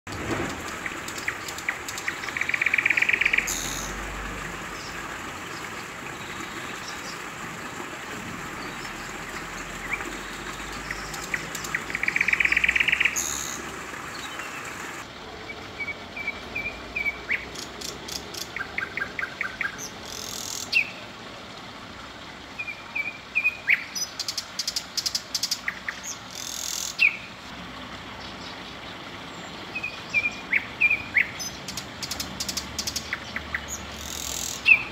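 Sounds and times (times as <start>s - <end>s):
nightingales singing: 0.3s - 7.4s, 8.6s - 21.1s, 22.6s - 27.4s, 28.2s - 34.9s
loud buzzy bird phrase: 2.2s - 4.2s, 10.2s - 14.7s.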